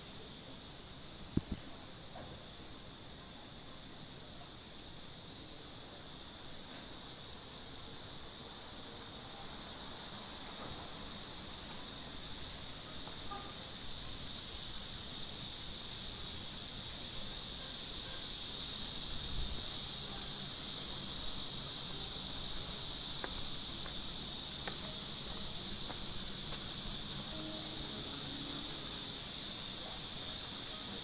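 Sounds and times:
insects droning: 0.0s - 31.0s
faint ticks: 1.3s - 2.3s.

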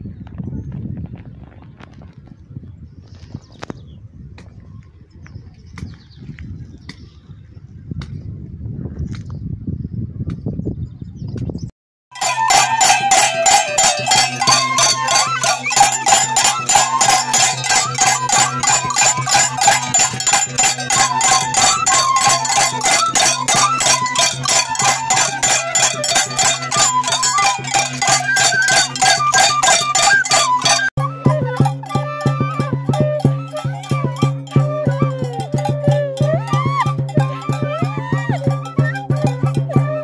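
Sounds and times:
cane flute melody: 12.1s - 40.0s
fast percussion beat: 12.1s - 40.0s.

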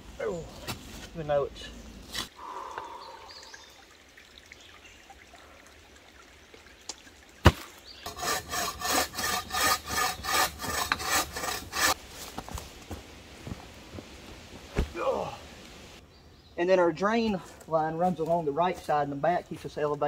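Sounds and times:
hand saw cutting wood: 8.0s - 12.0s.

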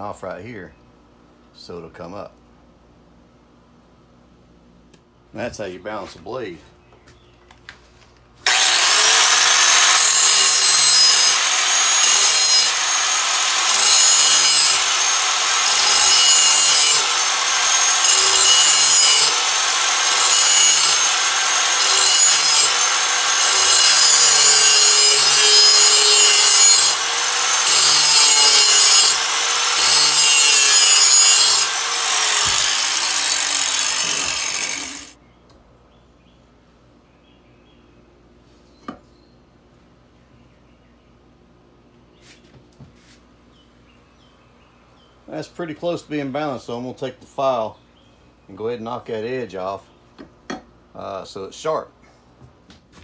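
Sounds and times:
angle grinder grinding metal: 8.5s - 35.2s.

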